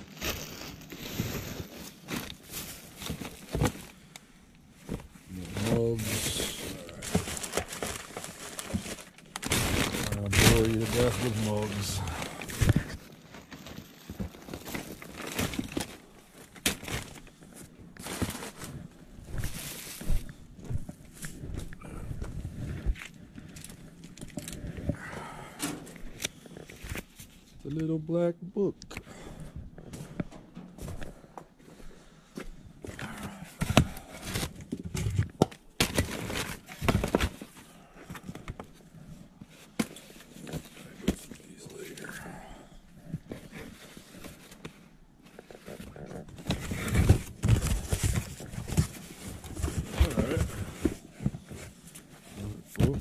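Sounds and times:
plastic items knocking and clattering: 0.0s - 4.0s, 4.8s - 21.6s, 32.8s - 41.4s, 45.6s - 51.9s, 52.7s - 53.0s
paper bags and boxes rustling: 0.0s - 27.6s, 32.7s - 42.2s, 42.9s - 53.0s.

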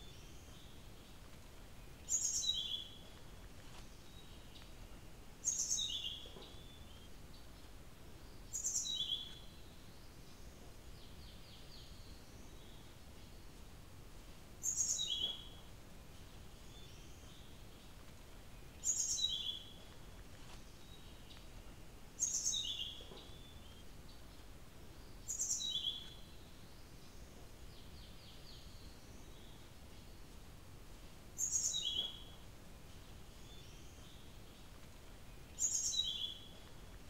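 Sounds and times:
bird whistling song: 2.0s - 3.0s, 5.4s - 7.1s, 8.5s - 9.4s, 14.6s - 15.5s, 18.8s - 19.7s, 22.2s - 23.8s, 25.3s - 26.2s, 31.4s - 32.3s, 35.5s - 36.5s.

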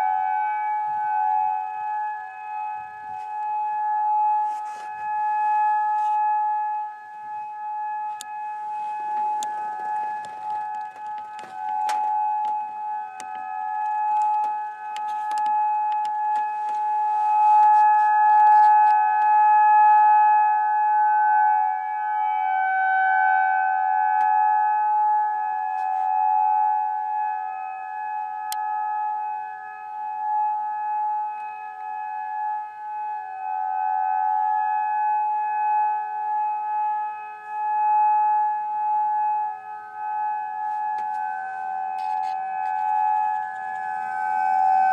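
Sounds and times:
warning sirens steady tone: 0.0s - 44.9s
scattered clicks: 9.4s - 12.6s, 13.2s - 16.8s.

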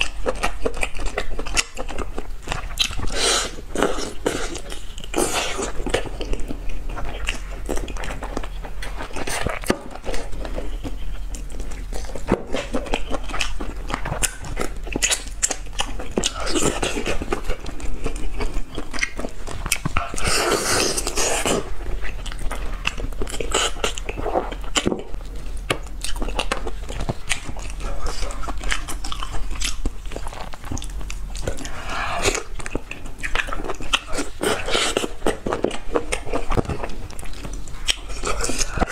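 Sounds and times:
biting and chewing: 0.0s - 38.9s.

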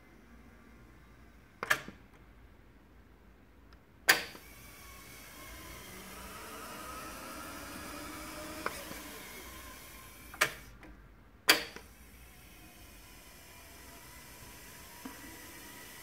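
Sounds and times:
loud sharp clicks: 3.7s - 4.5s, 11.5s - 11.9s
light click of tape transport: 10.3s - 11.9s.

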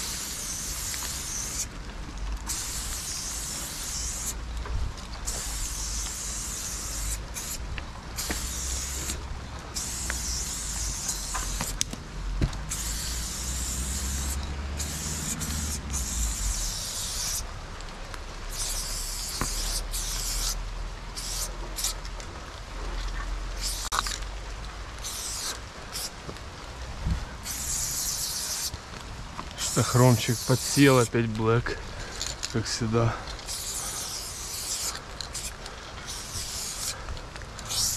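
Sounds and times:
spray paint can hissing: 0.0s - 1.7s, 2.4s - 4.4s, 5.2s - 11.9s, 12.7s - 17.5s, 18.5s - 22.0s, 23.6s - 24.2s, 25.0s - 26.2s, 27.4s - 28.8s, 29.6s - 31.1s, 33.4s - 37.0s, 37.6s - 37.9s.

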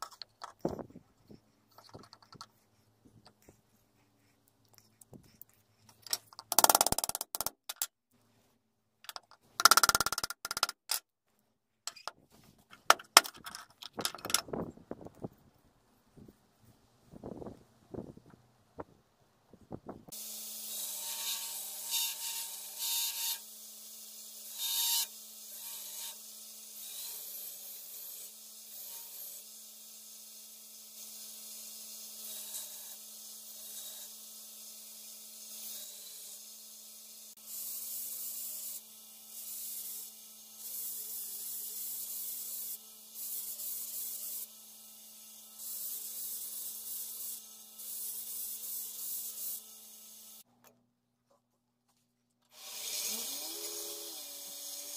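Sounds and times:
belt grinder motor hum: 52.5s - 54.9s.

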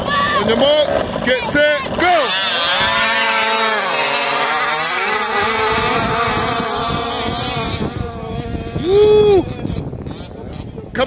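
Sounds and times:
two-stroke engines at high revs: 0.0s - 11.0s.

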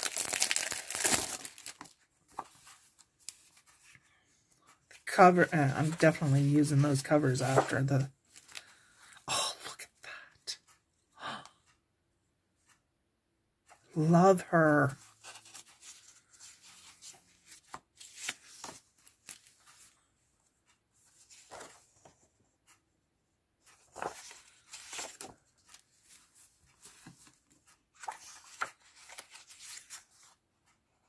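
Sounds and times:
paper sheets rustling: 0.0s - 4.0s, 5.6s - 8.7s, 15.0s - 20.0s, 21.0s - 22.1s, 23.6s - 30.4s.

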